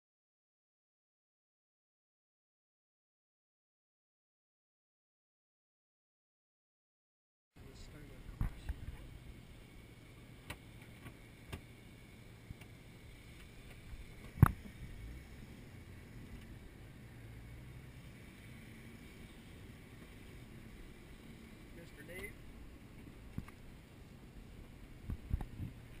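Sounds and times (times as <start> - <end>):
car engine running low: 7.6 - 26.0.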